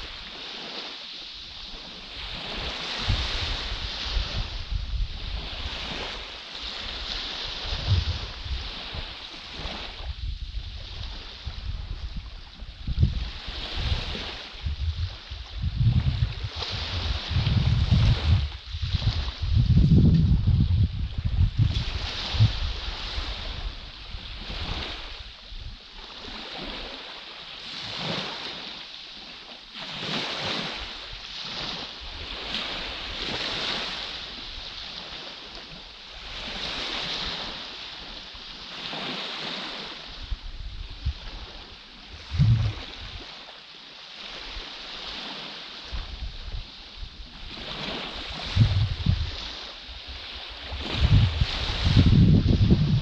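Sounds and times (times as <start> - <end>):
small waves breaking on beach: 0.0 - 53.0
wind buffeting microphone: 1.9 - 26.8, 40.1 - 43.4, 45.9 - 53.0.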